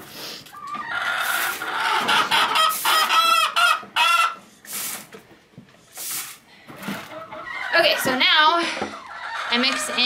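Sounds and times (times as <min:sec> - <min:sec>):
chickens clucking and squawking: 0:00.0 - 0:05.2, 0:05.8 - 0:10.0.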